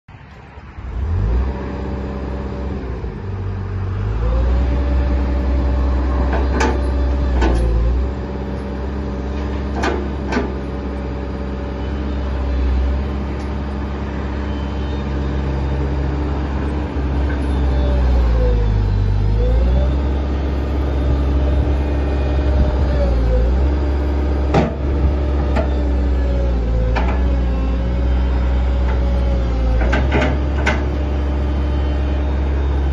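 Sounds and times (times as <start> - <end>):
diesel engine running: 0.8 - 32.9.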